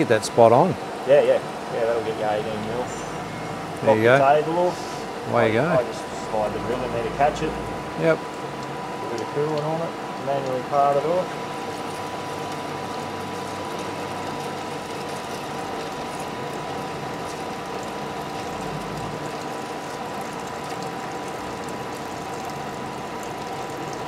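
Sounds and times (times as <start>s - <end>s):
metal lathe running: 1.4s - 9.2s.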